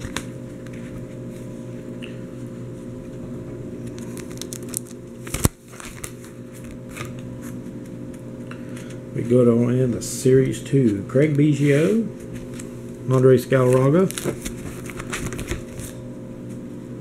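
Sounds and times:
steady low hum: 0:00.0 - 0:17.0
plastic pages crinkling: 0:03.8 - 0:07.6, 0:13.4 - 0:16.0.

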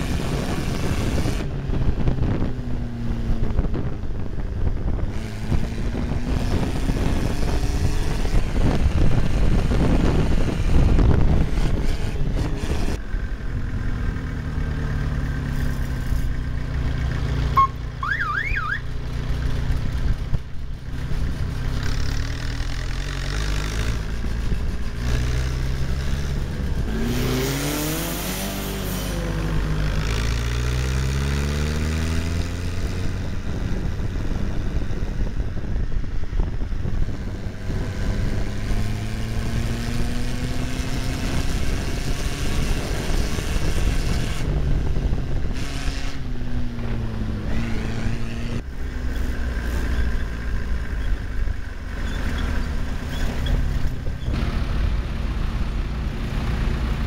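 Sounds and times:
tractor engine running: 0:00.2 - 0:28.0, 0:46.3 - 0:57.0.

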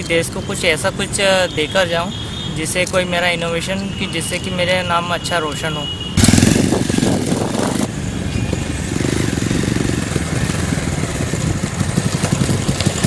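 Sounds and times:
motorcycle engine running: 0:06.2 - 0:13.0.

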